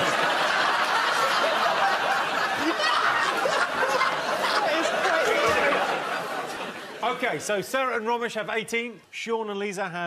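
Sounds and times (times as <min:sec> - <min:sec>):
audience laughing: 0:00.0 - 0:07.6.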